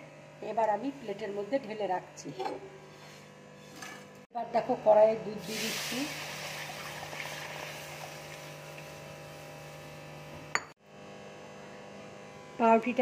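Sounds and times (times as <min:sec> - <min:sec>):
milk sizzling in hot pan: 0:05.4 - 0:09.8.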